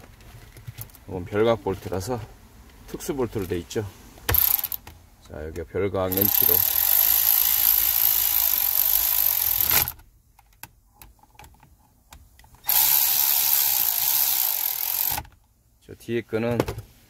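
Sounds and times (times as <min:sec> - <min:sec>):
cordless electric ratchet running: 0:04.3 - 0:04.8, 0:06.1 - 0:10.0, 0:12.6 - 0:15.3.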